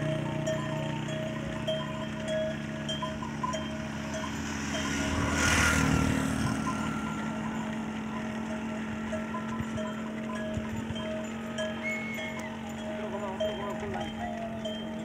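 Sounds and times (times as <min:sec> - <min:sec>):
cattle bells clinking: 0:00.0 - 0:15.0
rushing noise: 0:03.8 - 0:07.3.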